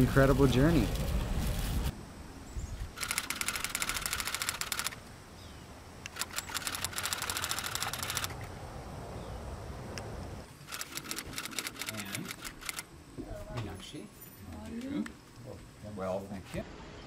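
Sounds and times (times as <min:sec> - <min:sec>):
insect clicking: 0:03.0 - 0:05.0.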